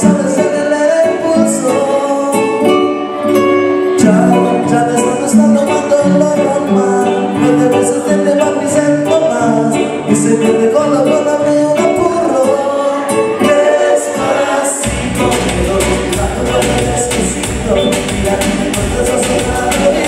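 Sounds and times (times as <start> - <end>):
electric guitar: 0.0 - 20.0
keyboard: 0.0 - 20.0
men singing together: 4.0 - 20.0
deep bass line: 14.2 - 20.0.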